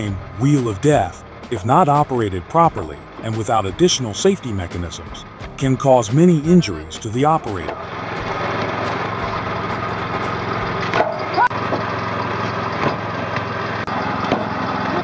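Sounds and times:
flywheel log splitter humming: 7.2s - 15.0s.

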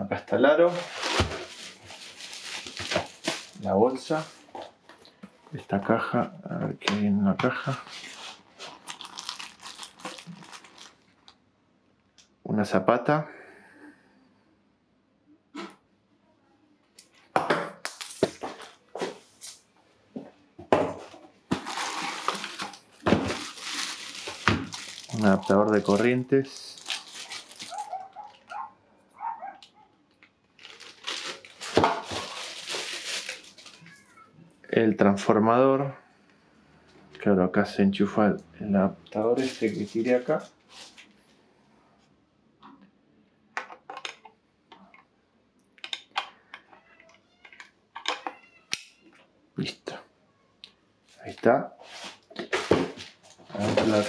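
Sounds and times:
plastic bag crinkling: 0.7s - 4.5s, 7.5s - 11.4s, 21.5s - 28.7s, 30.4s - 34.1s, 39.4s - 41.1s, 52.6s - 54.0s
packaging knocks and rustles: 0.9s - 3.6s, 21.5s - 26.2s, 26.8s - 28.4s, 30.6s - 33.8s, 52.3s - 54.0s.

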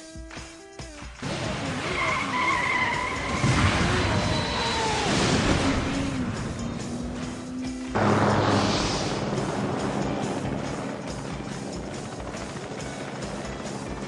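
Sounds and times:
motorcycle engine revving: 1.2s - 14.0s
high tyre squeal: 1.6s - 6.2s.

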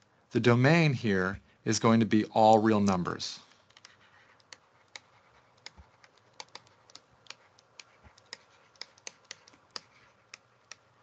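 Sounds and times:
stylus tapping on pen tablet: 3.6s - 10.9s.

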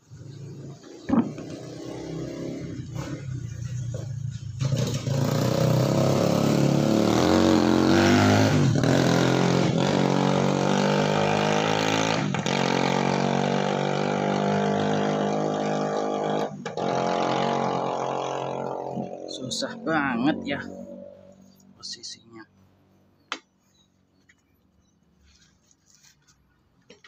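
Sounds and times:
vehicle engine running: 0.0s - 7.3s, 8.8s - 23.2s.

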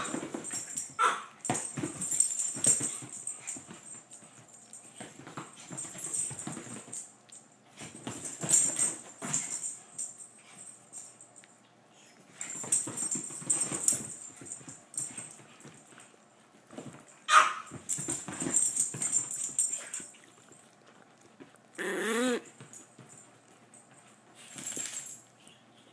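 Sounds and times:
collar tags jingling: 0.0s - 11.5s, 12.3s - 21.4s, 22.3s - 25.6s
dog paws scuffling: 0.0s - 25.9s
dog yelping: 21.8s - 22.5s
dog whining: 21.8s - 22.6s.

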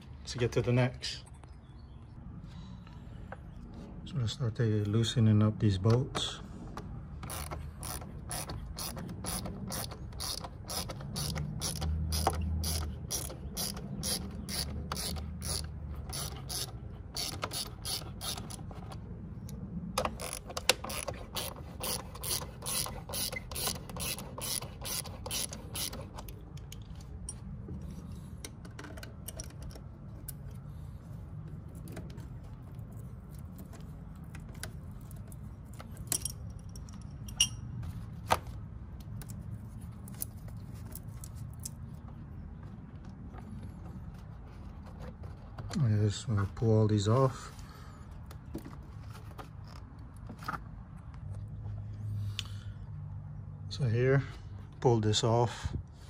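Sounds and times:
ratchet wrench clicking: 7.2s - 18.7s, 20.0s - 26.8s.

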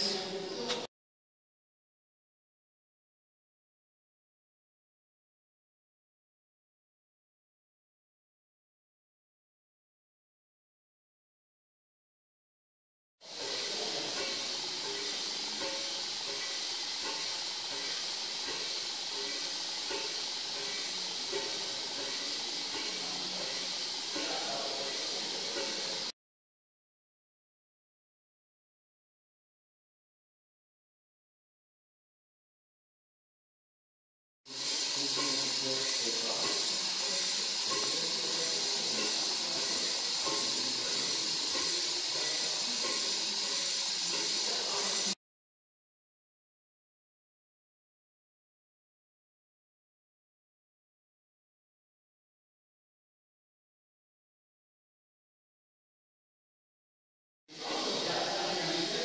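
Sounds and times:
steam hissing: 13.2s - 26.1s, 34.5s - 45.2s, 57.5s - 59.0s
steam engine running: 13.3s - 26.1s, 34.5s - 45.2s, 57.6s - 59.0s.

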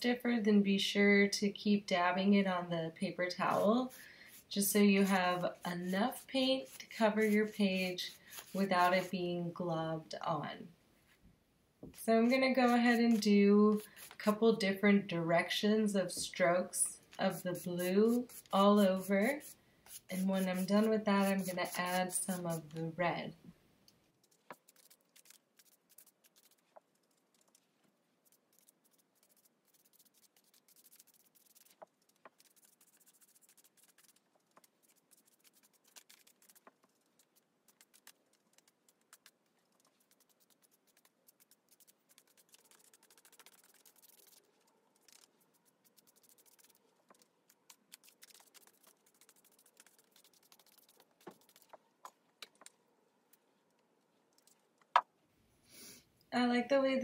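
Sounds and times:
dry brush scratching on paper: 3.4s - 9.1s, 12.0s - 14.4s, 17.2s - 22.8s, 24.2s - 27.5s, 28.2s - 51.7s.

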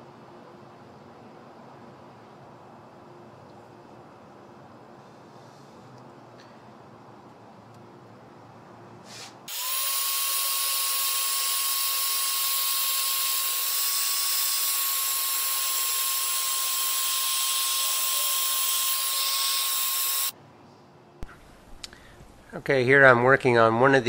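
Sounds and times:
heat gun blowing: 9.1s - 20.4s.

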